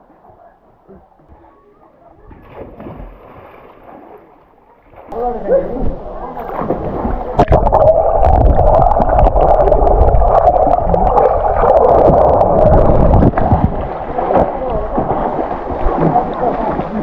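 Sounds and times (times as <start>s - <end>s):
water sloshing: 2.1s - 17.0s
underwater rush of bubbles: 6.1s - 17.0s.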